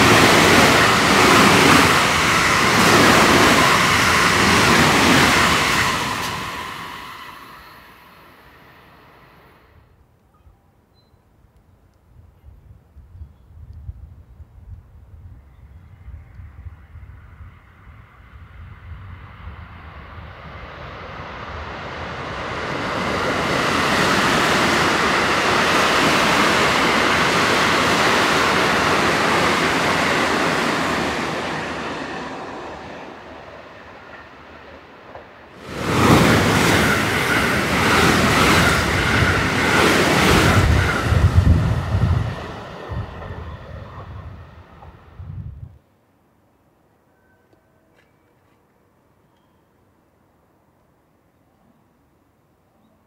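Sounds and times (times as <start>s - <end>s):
electric train rushing past: 0.0s - 10.0s, 15.8s - 45.8s
train whine: 0.0s - 10.0s, 14.9s - 45.8s.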